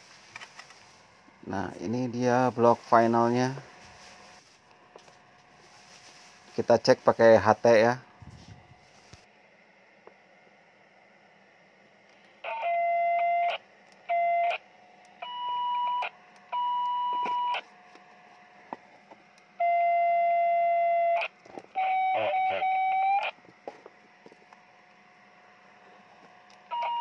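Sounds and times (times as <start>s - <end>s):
electronic whistle through radio speaker: 12.5s - 14.6s, 19.6s - 23.3s.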